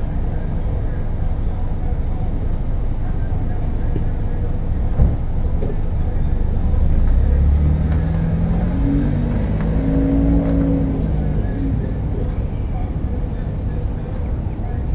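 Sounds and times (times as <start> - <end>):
car accelerating: 0.0 - 14.9
short thump: 5.0 - 5.8.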